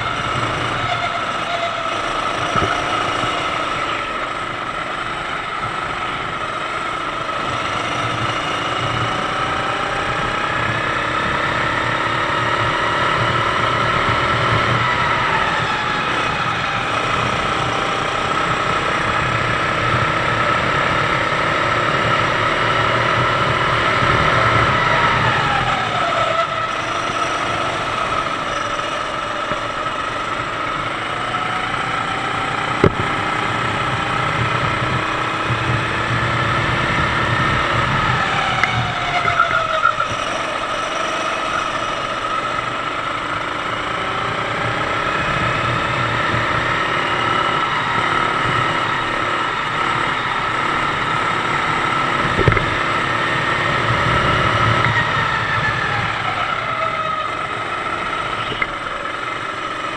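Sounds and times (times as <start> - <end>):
kart engine running: 0.0 - 59.9
sharp knock: 52.4 - 52.7.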